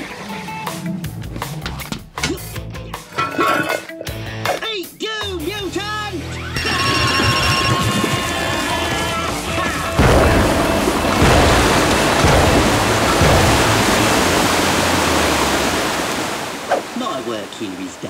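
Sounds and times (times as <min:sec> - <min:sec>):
music: 0:00.0 - 0:11.9
cartoon water gushing: 0:10.0 - 0:17.4.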